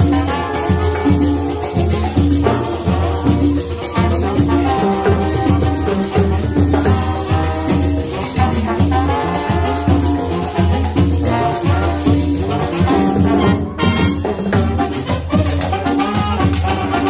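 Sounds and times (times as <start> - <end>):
horns playing melody: 0.0 - 17.0
shaker percussion: 0.0 - 17.0.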